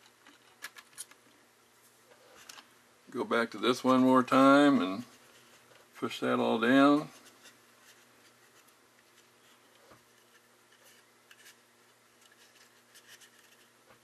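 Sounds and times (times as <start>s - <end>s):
light clicks and rubbing of plastic: 2.1s - 2.7s, 6.8s - 14.0s.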